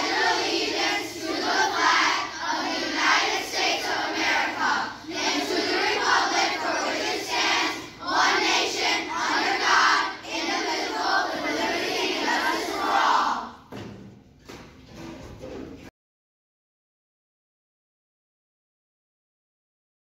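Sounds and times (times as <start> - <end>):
children reciting in unison: 0.0 - 13.7.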